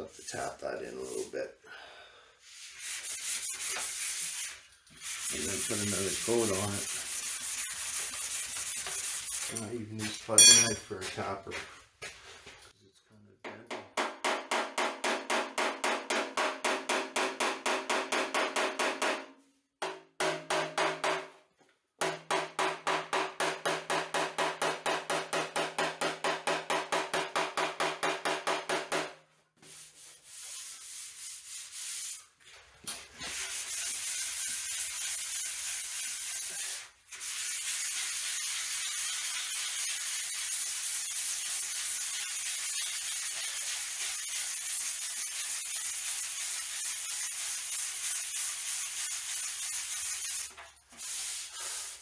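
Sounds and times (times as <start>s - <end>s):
sanding block rubbing: 2.4s - 9.7s, 29.6s - 32.4s, 33.2s - 52.0s.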